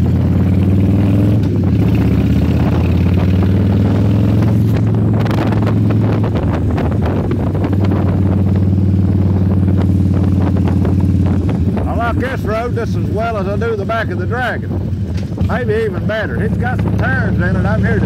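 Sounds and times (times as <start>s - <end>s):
motorcycle engine running: 0.0s - 18.0s
wind buffeting microphone: 0.0s - 18.0s.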